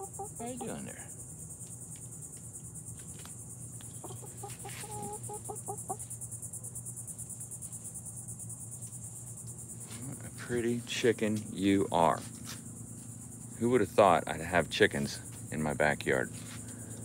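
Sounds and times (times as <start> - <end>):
hen clucking: 0.0 - 0.8, 3.8 - 6.0
insects chirring: 0.0 - 17.0.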